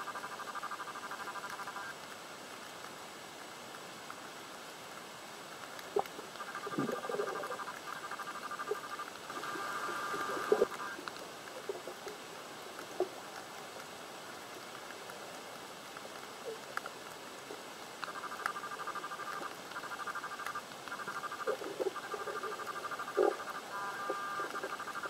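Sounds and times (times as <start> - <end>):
faint underwater clicks: 5.5 - 25.0.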